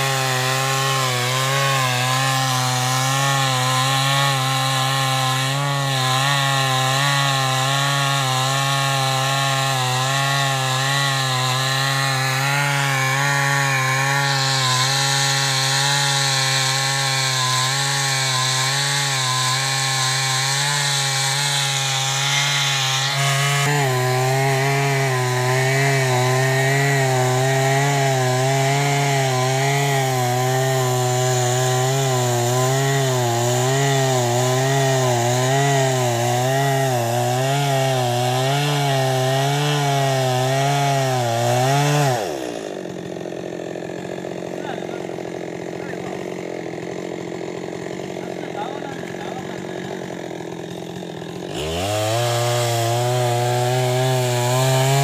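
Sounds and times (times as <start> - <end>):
chainsaw ripping a log: 0.0 - 55.0.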